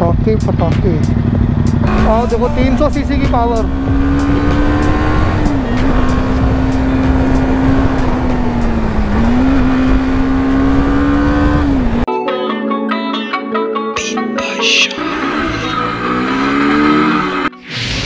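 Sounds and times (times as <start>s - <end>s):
motorcycle engine at high revs: 0.0s - 12.1s, 15.0s - 17.5s
wind and road rush: 0.0s - 12.1s
background music: 0.0s - 18.0s.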